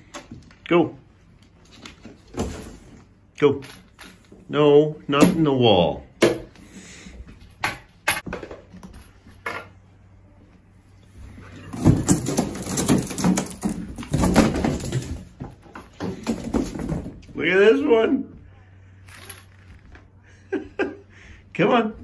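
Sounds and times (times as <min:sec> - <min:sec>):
raccoons scrambling over cardboard: 0:11.2 - 0:17.4.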